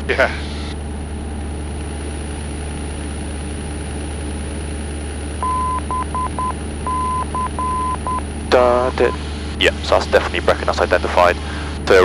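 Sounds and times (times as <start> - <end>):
aircraft engine and propeller drone: 0.0 - 12.0
morse code beeps: 5.4 - 8.2.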